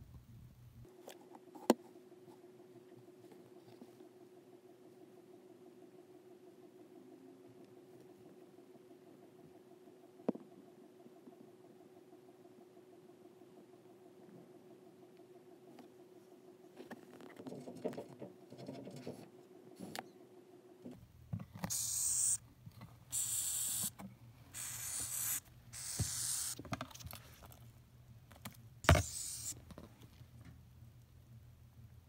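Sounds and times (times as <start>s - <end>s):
cockroach hissing: 21.7s - 22.4s, 23.1s - 23.9s, 24.5s - 26.6s, 28.8s - 29.6s.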